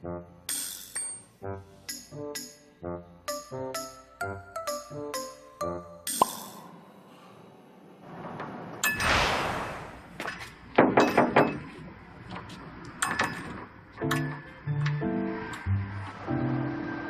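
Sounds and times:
glass door clinks and knocks: 10.8 - 11.7.

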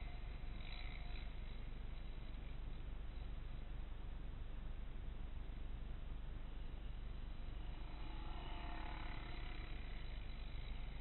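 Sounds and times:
quad bike engines running: 0.0 - 3.4.

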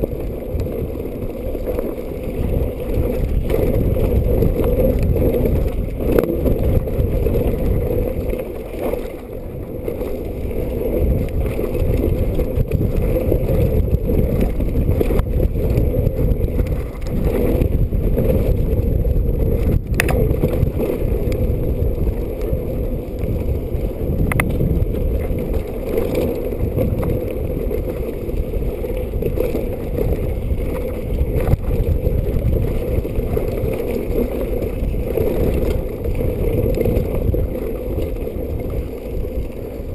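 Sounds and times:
bike rolling on gravel trail: 0.0 - 39.9
muffled wind rumble: 0.0 - 39.9
bike clicks and knocks: 19.5 - 21.4.

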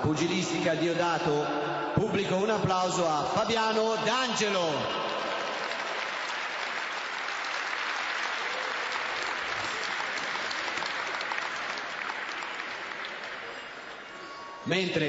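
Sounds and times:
audience applauding: 4.5 - 14.6.

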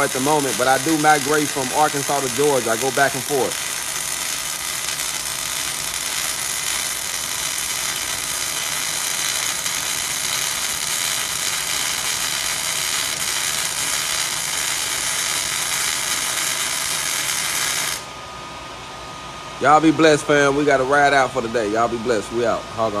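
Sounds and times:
welding arc crackling hiss: 0.0 - 18.2.

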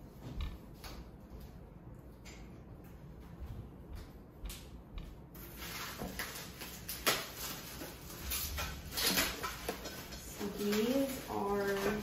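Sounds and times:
packing material rustling: 5.4 - 12.0.

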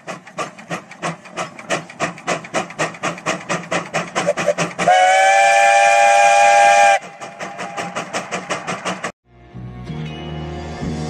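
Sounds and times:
steam engine chuffing: 0.0 - 9.2
steam whistle chord: 4.9 - 7.1.

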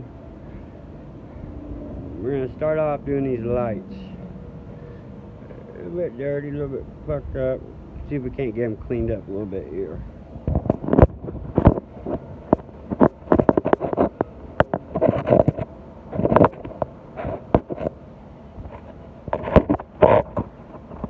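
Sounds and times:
rubbing and scraping: 10.5 - 18.0, 18.6 - 21.0.

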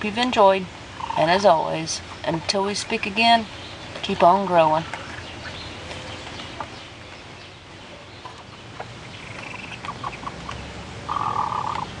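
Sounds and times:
chickens clucking: 7.8 - 12.0
chicken calling: 9.2 - 12.0.

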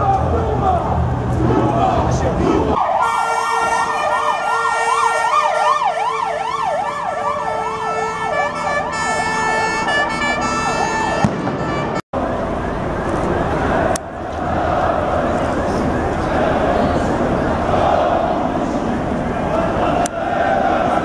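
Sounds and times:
street noise: 0.0 - 21.0
ambulance siren wailing: 2.7 - 13.7.

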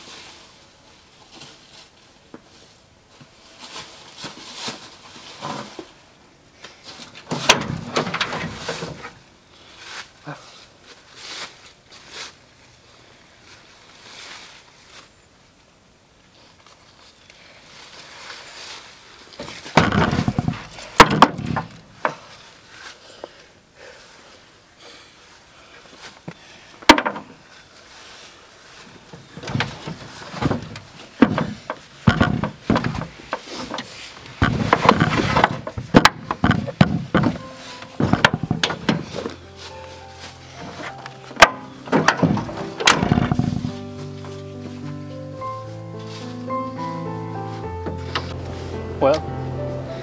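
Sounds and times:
knocks and thumps on steel: 19.7 - 22.2, 26.8 - 27.3, 29.4 - 39.3, 41.4 - 43.7.

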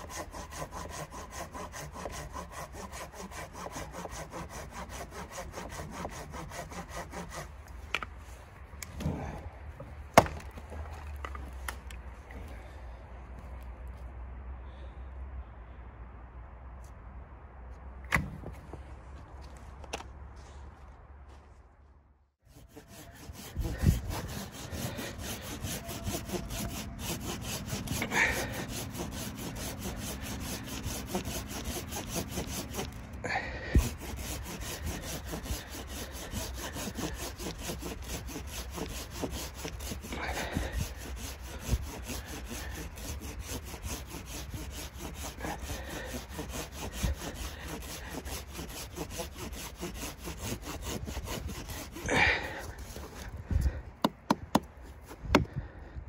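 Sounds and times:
hand saw sawing wood: 0.0 - 9.4, 10.2 - 11.9, 22.4 - 55.6.

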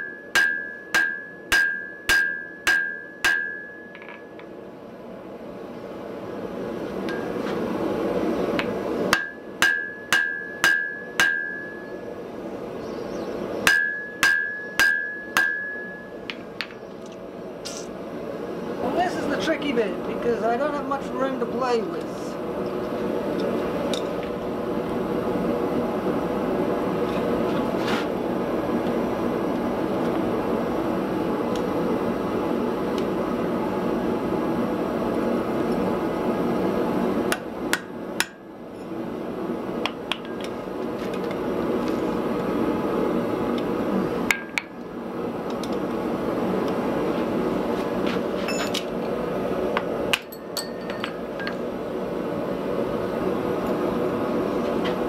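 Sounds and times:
hammer striking iron on anvil: 0.0 - 4.5, 9.1 - 11.8, 13.6 - 16.7, 37.3 - 38.4.

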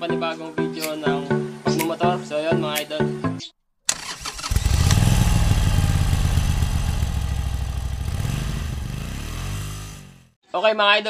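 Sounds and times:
motorcycle engine running: 4.4 - 10.4.

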